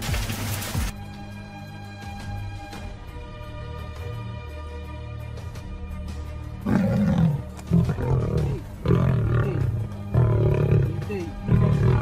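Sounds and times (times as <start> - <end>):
background music: 0.0 - 12.0
animals roaring: 6.6 - 12.0.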